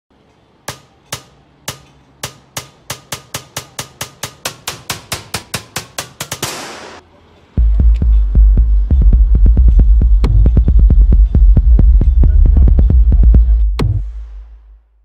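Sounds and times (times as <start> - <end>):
snare drum hits: 6.3 - 7.0.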